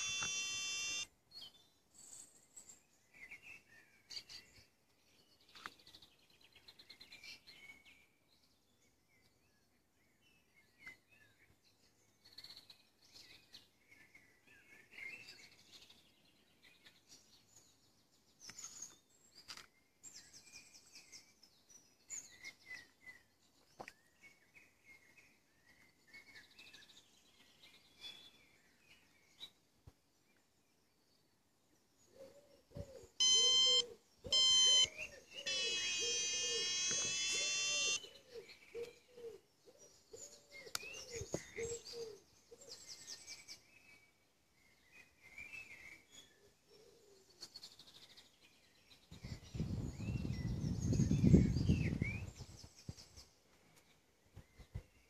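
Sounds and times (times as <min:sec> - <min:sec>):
loud pitched electronic beeps: 0:00.0 - 0:01.0, 0:33.2 - 0:34.9, 0:35.5 - 0:38.0
faint birds chirping: 0:00.0 - 0:55.0.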